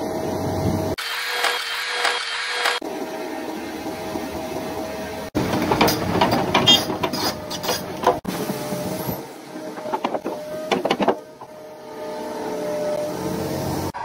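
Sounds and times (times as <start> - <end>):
excavator running: 0.0 - 14.0
sharp clanks and knocks: 5.4 - 9.0, 9.7 - 11.6.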